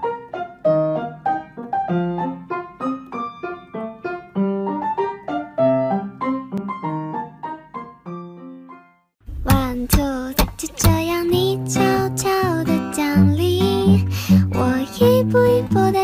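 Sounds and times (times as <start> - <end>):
light piano melody: 0.0 - 16.0.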